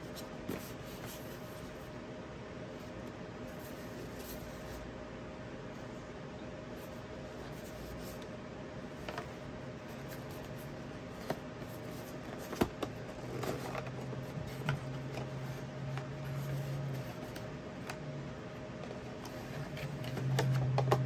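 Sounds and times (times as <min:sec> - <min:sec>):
cardboard rustling and scraping: 0:00.0 - 0:01.9, 0:02.8 - 0:04.8, 0:06.8 - 0:08.3, 0:08.9 - 0:18.0, 0:18.9 - 0:21.0
low steady hum: 0:00.0 - 0:21.0.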